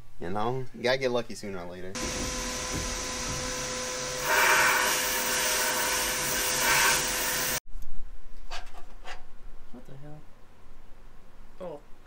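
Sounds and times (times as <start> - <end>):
blast cabinet hissing: 2.0 - 7.6.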